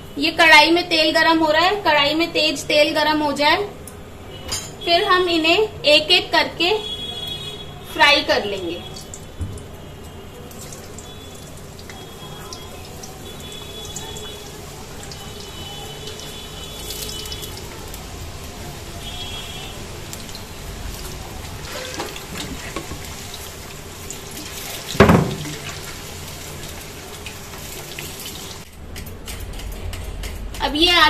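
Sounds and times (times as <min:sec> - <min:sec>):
potatoes sizzling in hot oil: 0:10.6 - 0:28.7
loud knock: 0:25.0 - 0:25.5.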